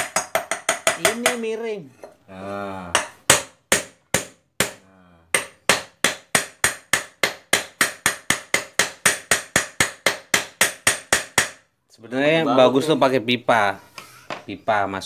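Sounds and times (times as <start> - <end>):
hammer tapping metal bearing: 0.0 - 1.4, 2.9 - 11.6.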